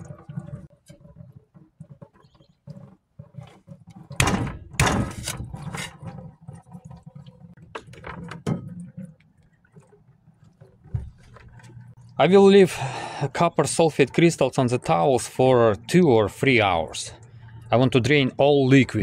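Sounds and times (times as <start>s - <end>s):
scrapes and knocks: 0.0s - 6.8s.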